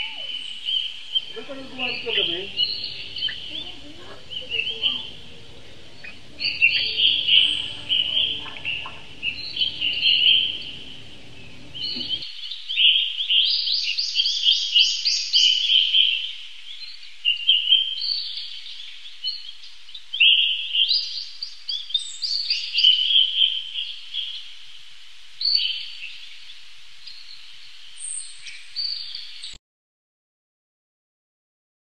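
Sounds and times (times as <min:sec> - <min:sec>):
lovebirds chattering: 0:00.0 - 0:24.3
low background noise: 0:00.0 - 0:29.6.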